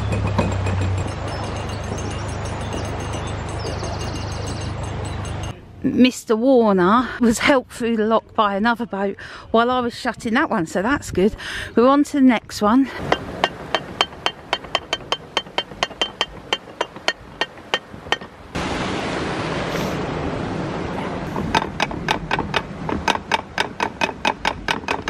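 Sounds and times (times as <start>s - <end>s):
water rushing: 0.0s - 5.5s, 12.9s - 25.0s.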